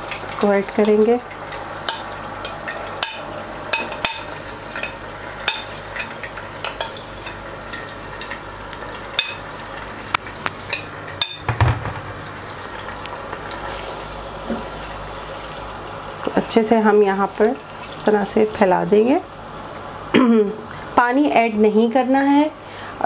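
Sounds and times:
chicken sizzling in hot oil: 0.0 - 22.8
heavy knock: 11.4 - 12.2.

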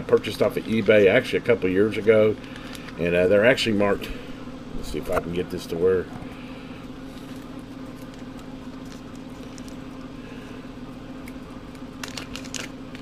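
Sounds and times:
background hum: 0.0 - 13.0
plastic bag crinkling: 0.2 - 3.7, 7.1 - 10.0, 11.7 - 13.0.

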